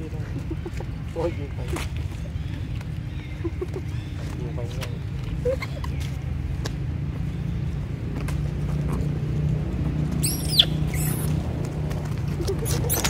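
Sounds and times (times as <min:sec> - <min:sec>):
monkeys scuffling: 0:10.0 - 0:13.0
high monkey call: 0:10.2 - 0:11.4, 0:12.3 - 0:13.0
young monkey squealing: 0:10.2 - 0:11.4, 0:12.4 - 0:13.0.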